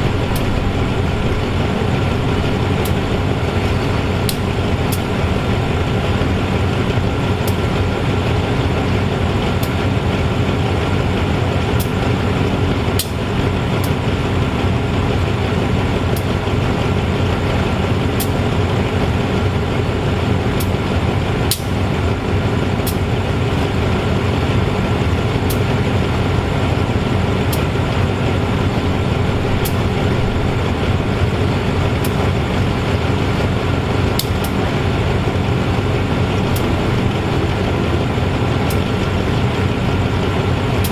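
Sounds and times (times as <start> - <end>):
diesel locomotive engine idling: 0.0 - 40.9.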